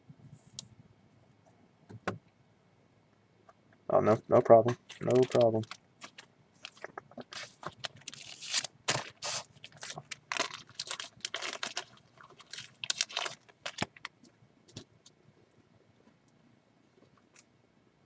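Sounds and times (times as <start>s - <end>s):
rustling and scraping handling noises: 4.6s - 16.3s.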